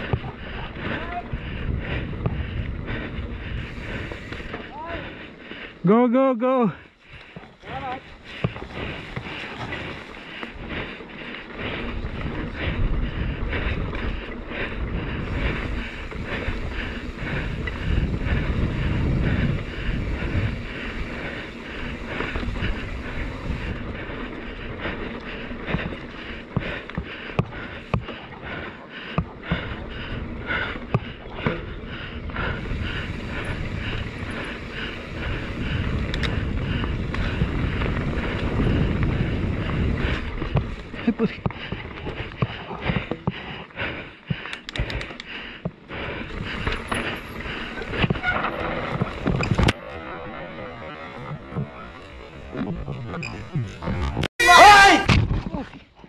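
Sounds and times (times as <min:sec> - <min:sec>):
wind buffeting microphone: 0:00.0 - 0:05.8, 0:07.1 - 0:49.8
bike clattering over bumps: 0:07.3 - 0:50.1
tyre noise: 0:07.3 - 0:56.0.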